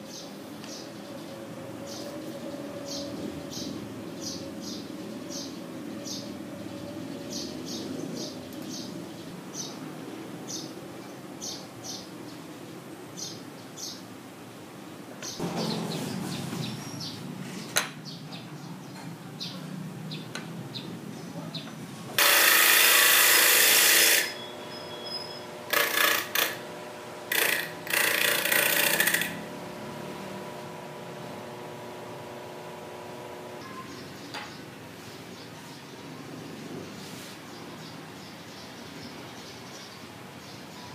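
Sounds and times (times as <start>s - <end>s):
disc sander motor hum: 22.2s - 24.7s, 25.3s - 33.6s
wood grinding on sander disc: 22.2s - 33.6s.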